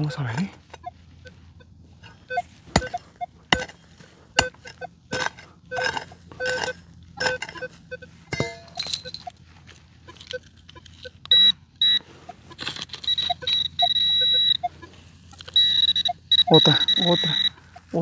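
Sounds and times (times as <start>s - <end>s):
metal detector short beeps: 0.0s - 9.4s, 10.1s - 18.0s
digging tool striking stony soil: 2.0s - 9.4s, 12.2s - 13.9s.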